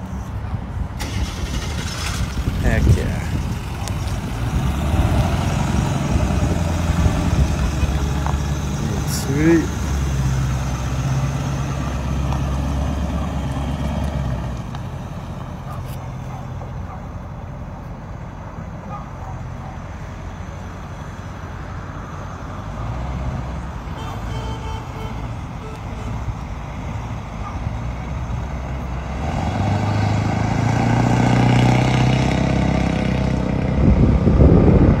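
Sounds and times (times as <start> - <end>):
truck engine driving off: 0.8 - 18.5, 19.4 - 35.0.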